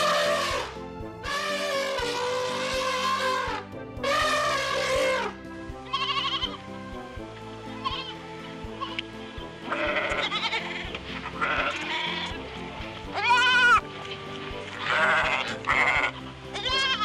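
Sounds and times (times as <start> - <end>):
background music: 0.0 - 17.0
young ibex bleating: 1.3 - 6.6, 7.7 - 8.2, 8.8 - 9.0, 9.6 - 12.4, 13.1 - 13.8, 14.8 - 17.0.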